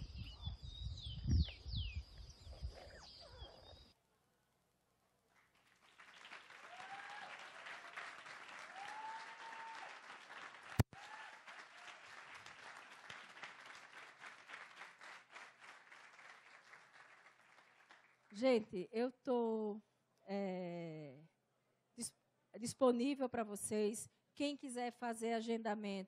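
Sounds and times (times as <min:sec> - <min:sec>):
audience applauding: 0:05.4 - 0:18.4
short calls from audience: 0:06.3 - 0:13.5.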